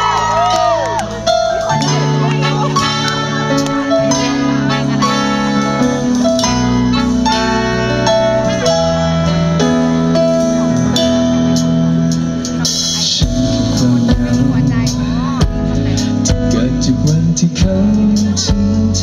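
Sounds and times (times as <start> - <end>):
guitar and bass chords: 0.0 - 19.0.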